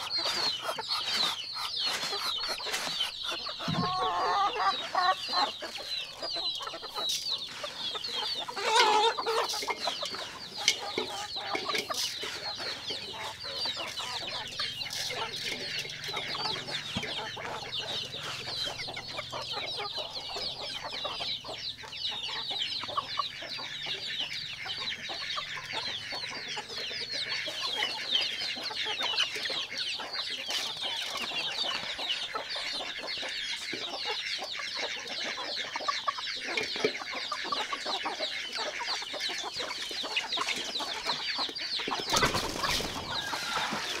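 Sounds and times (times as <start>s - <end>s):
chickens clucking: 0.0s - 44.0s
loud chicken call: 3.7s - 5.8s, 42.2s - 44.0s.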